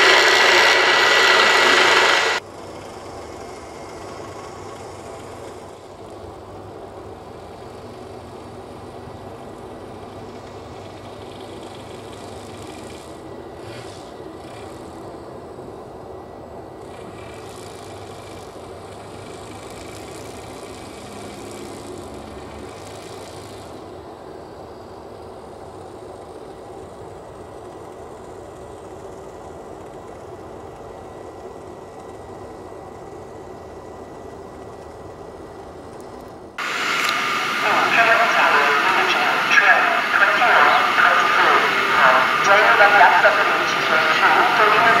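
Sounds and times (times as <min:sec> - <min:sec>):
loud rushing noise: 0:00.0 - 0:02.4, 0:36.6 - 0:45.0
train rumble and hum: 0:36.6 - 0:45.0.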